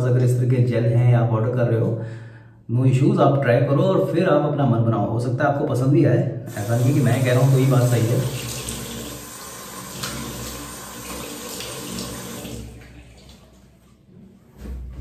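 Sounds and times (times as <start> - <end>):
tap water running into a sink: 6.5 - 13.8.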